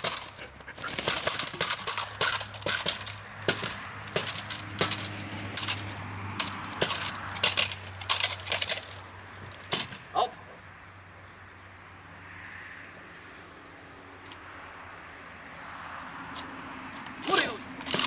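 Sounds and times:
stick striking sharp cracks: 0.0 - 0.4, 1.0 - 9.0, 9.6 - 10.1, 17.2 - 18.0.

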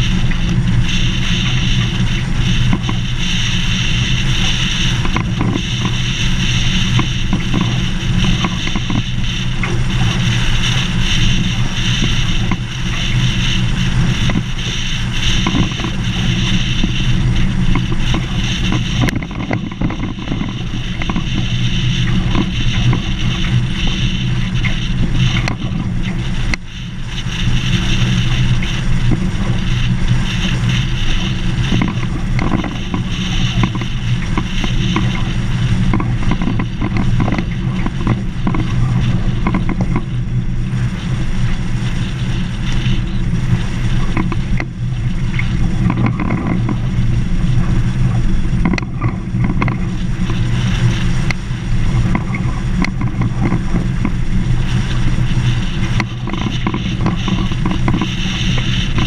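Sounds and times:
small clicks and rattles: 0.0 - 59.0
vehicle engine hum: 0.0 - 59.0.

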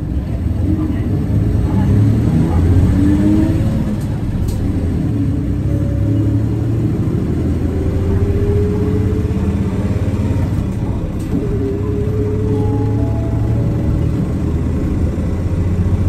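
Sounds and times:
bus diesel engine rumble: 0.0 - 16.0
rising tone: 5.6 - 16.0.

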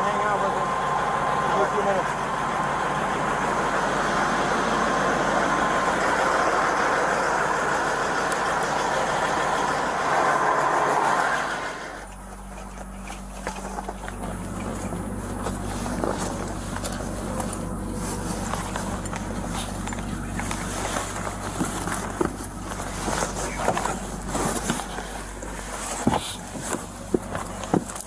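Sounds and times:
diesel truck engine idling: 0.0 - 28.0
low steady cab hum: 0.0 - 28.0
bedding rustling and clicks: 12.0 - 28.0.

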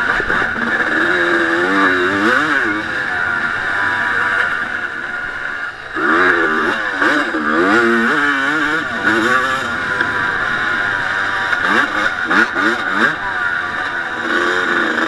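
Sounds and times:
two-stroke motorcycle engine racing: 0.0 - 15.0.

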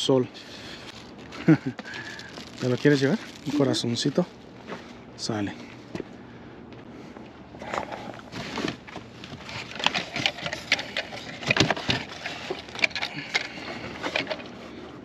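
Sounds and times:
objects clattering and knocking: 7.6 - 14.7.

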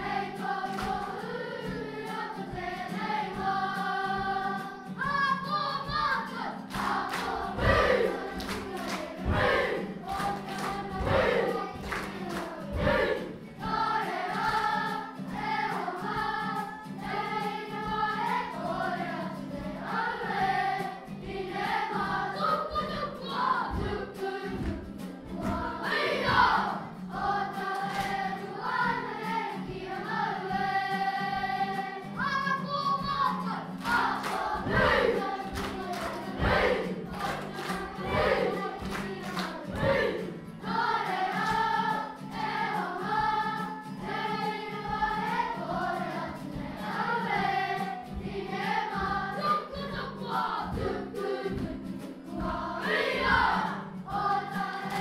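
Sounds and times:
children singing as a choir: 0.0 - 55.0
strummed guitar: 0.0 - 55.0.

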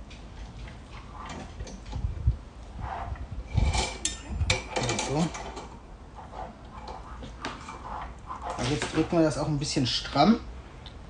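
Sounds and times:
metal fork scraping on rod: 2.8 - 9.2
metallic ringing: 3.7 - 5.4.

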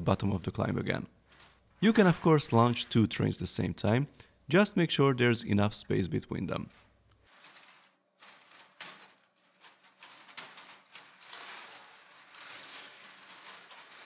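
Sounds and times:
plastic wheels rattling on rails: 6.7 - 14.0.

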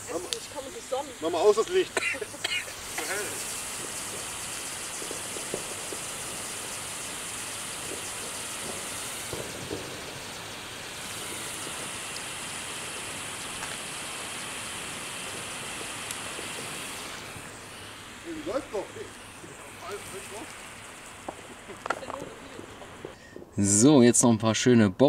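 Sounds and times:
fire pot hissing: 0.0 - 24.0
short pops: 1.6 - 23.5.

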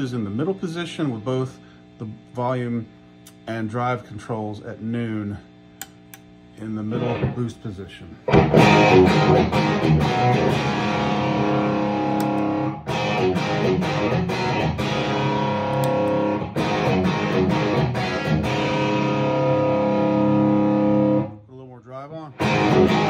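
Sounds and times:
electric guitar overdriven chords: 6.8 - 7.5, 8.3 - 21.4, 22.3 - 23.0.

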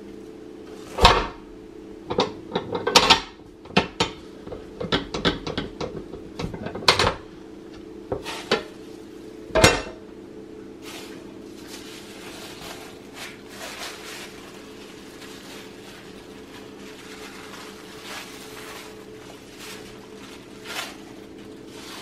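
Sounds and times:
steady low hum: 0.0 - 22.0
plastic liner crinkling: 10.8 - 22.0.

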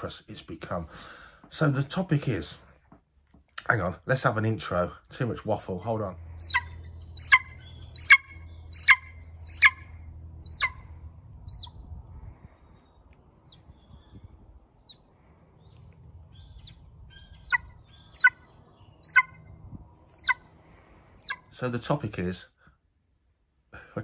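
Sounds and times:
eagle yelping calls: 6.2 - 11.8, 13.3 - 21.6.

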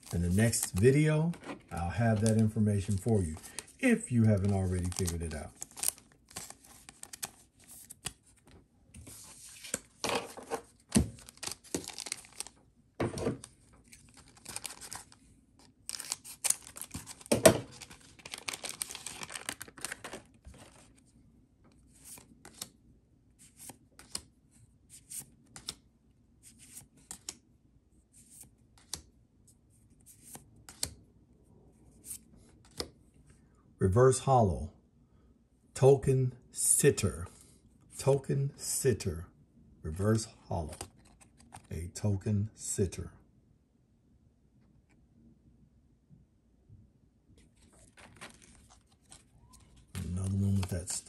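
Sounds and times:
cards ticking and flicking: 0.1 - 8.2, 48.0 - 51.0
foil pack tearing and crinkling: 11.2 - 12.5, 15.9 - 20.8.

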